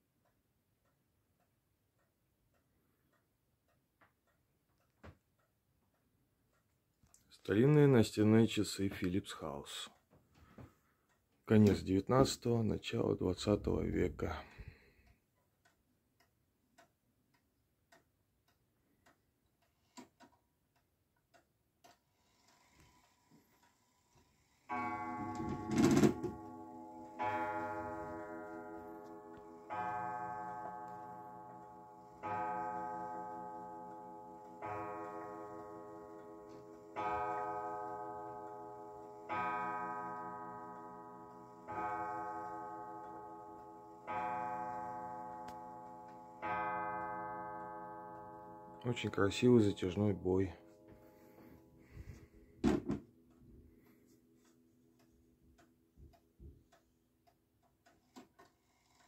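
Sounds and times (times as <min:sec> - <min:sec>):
clock ticking: 0:00.0 - 0:51.5, 0:54.4 - 0:59.0
clock striking: 0:24.4 - 0:50.8.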